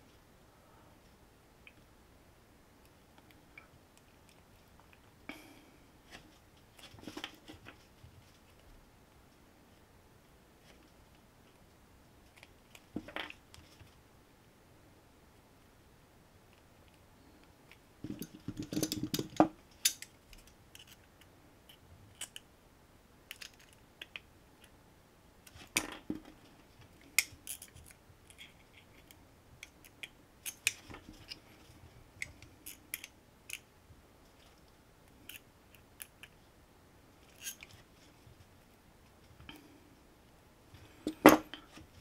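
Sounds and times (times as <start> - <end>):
pliers clicking on wire: 18.7 - 21.0.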